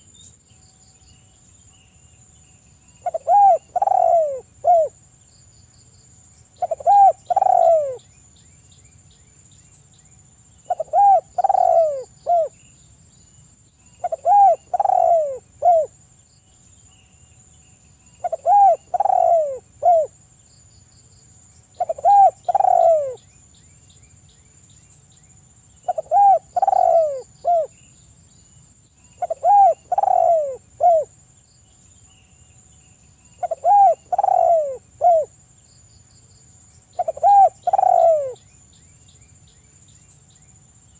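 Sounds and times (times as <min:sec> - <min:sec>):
dove cooing: 0:03.0 - 0:05.0, 0:06.6 - 0:08.0, 0:10.7 - 0:12.6, 0:14.0 - 0:15.9, 0:18.2 - 0:20.2, 0:21.8 - 0:23.2, 0:25.8 - 0:27.7, 0:29.2 - 0:31.1, 0:33.4 - 0:35.3, 0:37.0 - 0:38.4.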